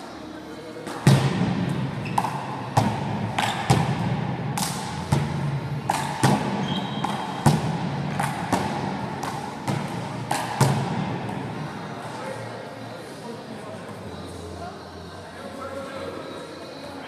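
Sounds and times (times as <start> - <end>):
sneakers squeaking on court: 1.7 - 2.8, 6.5 - 7.6.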